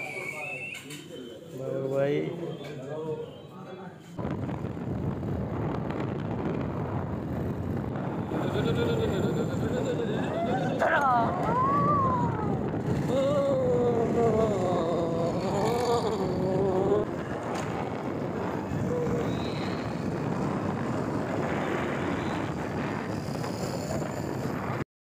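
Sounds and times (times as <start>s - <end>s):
wind and road noise: 4.2s - 24.8s
man wailing: 13.0s - 17.1s.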